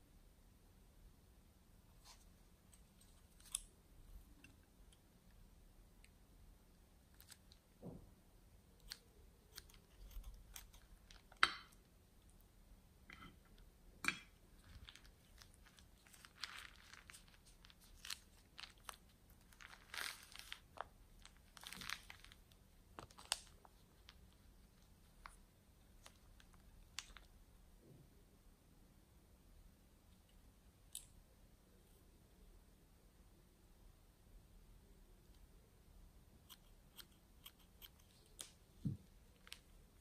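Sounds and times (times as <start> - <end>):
plastic bag crinkling: 14.6 - 27.3.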